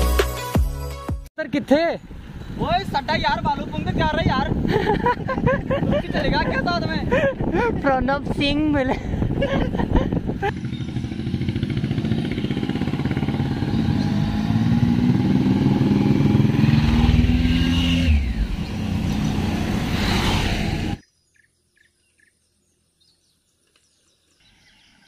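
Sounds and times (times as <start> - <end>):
motorcycles riding past: 10.3 - 21.0.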